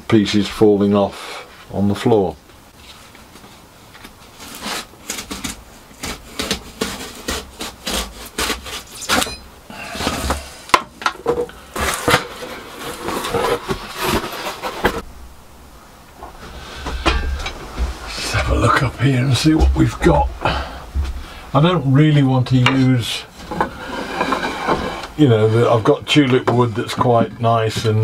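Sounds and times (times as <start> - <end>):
knife scoring foam board: 4.5 - 9.3.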